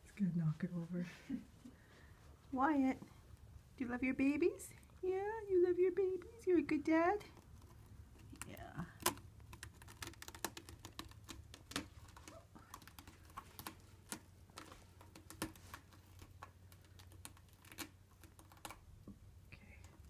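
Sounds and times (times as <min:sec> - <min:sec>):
soft rustling: 0:00.0 - 0:20.0
kittens scuffling: 0:06.0 - 0:19.2
faint clicks and taps: 0:06.0 - 0:20.0.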